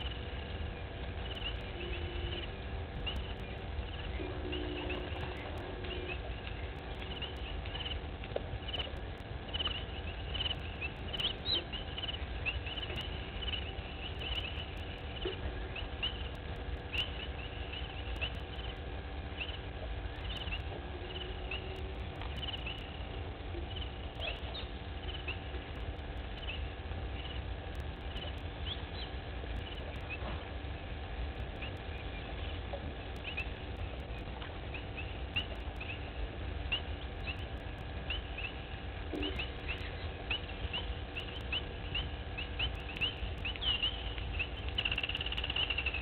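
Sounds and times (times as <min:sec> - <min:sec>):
steady low rumble: 0:00.0 - 0:46.0
high chirps of small wildlife: 0:08.6 - 0:18.8, 0:39.2 - 0:46.0.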